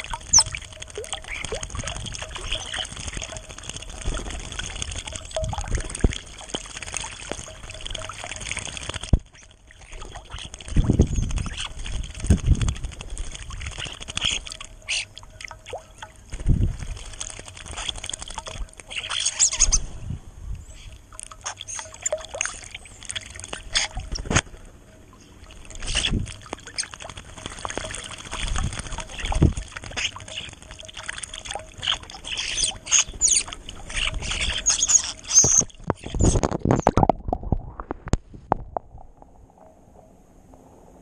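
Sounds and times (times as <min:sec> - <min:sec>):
wings flapping: 0:00.0 - 0:15.1, 0:16.3 - 0:19.8, 0:25.8 - 0:37.0
birds splashing in water: 0:00.0 - 0:19.9, 0:20.7 - 0:37.1
muffled splashing at microphone: 0:00.0 - 0:40.7.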